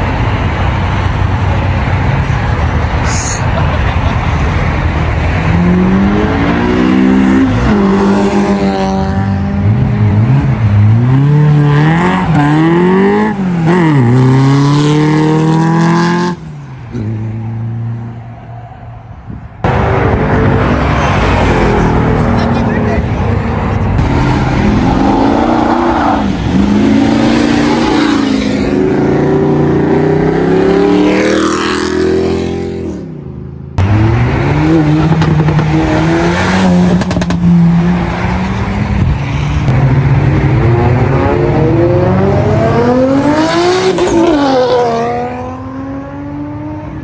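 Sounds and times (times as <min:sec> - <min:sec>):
car engines accelerating: 0:00.0 - 0:47.0.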